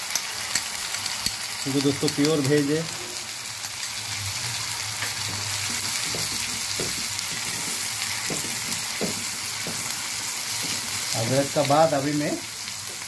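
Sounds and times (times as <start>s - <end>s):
food sizzling in hot oil: 0.0s - 13.0s
spatula knocking against pan: 5.2s - 10.9s.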